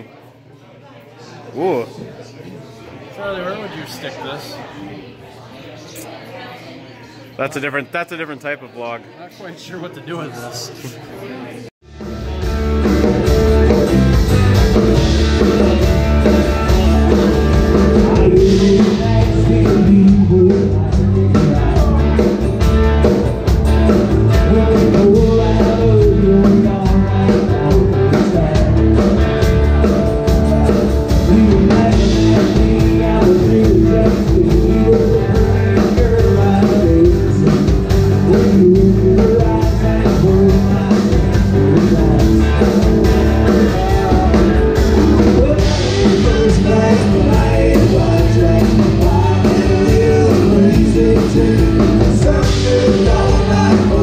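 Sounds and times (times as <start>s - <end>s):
country band playing: 11.8s - 54.0s
person singing: 15.0s - 54.0s.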